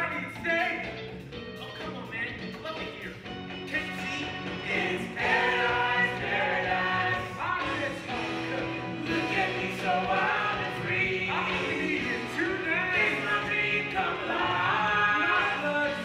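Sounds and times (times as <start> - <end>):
chorus singing with instruments: 3.9 - 16.0.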